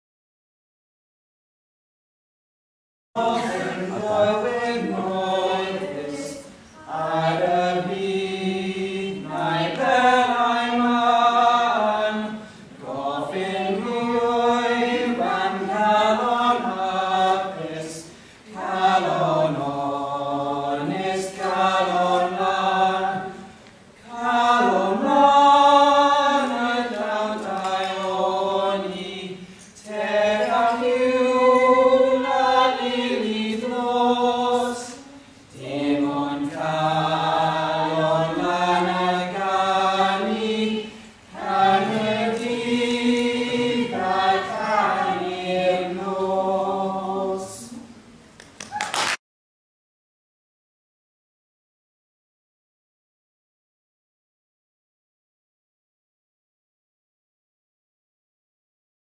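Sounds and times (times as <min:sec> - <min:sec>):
group singing unaccompanied: 0:03.2 - 0:48.1.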